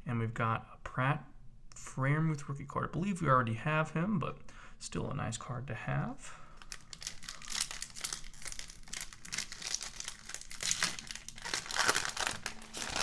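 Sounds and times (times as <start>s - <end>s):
foil wrapper crinkling and tearing: 6.6s - 13.0s.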